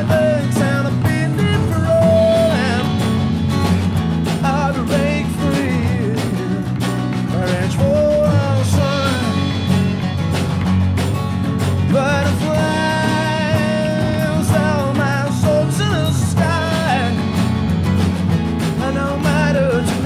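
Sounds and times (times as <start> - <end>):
band playing a song: 0.0 - 20.0.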